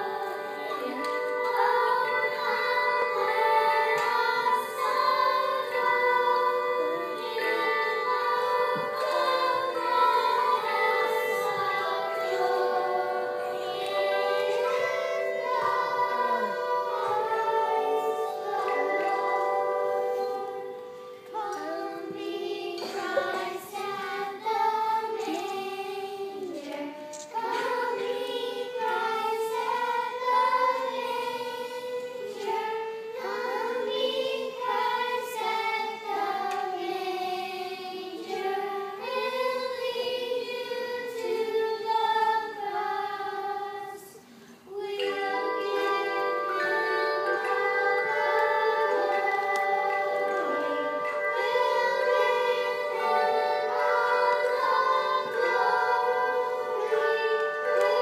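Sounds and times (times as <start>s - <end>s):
children's choir singing: 0.0s - 58.0s.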